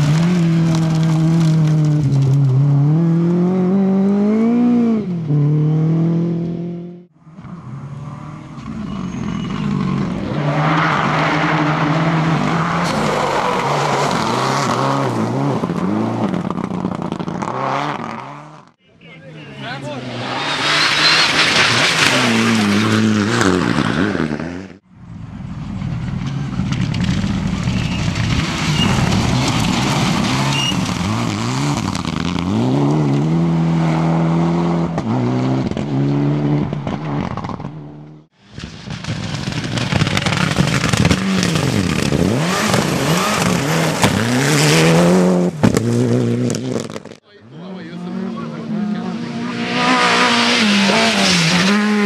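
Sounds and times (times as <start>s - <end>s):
tyres on gravel: 0.0s - 2.7s, 19.6s - 24.3s, 25.7s - 34.0s, 34.9s - 47.5s
rally car engines revving: 0.0s - 18.7s, 19.4s - 24.8s, 25.6s - 52.0s.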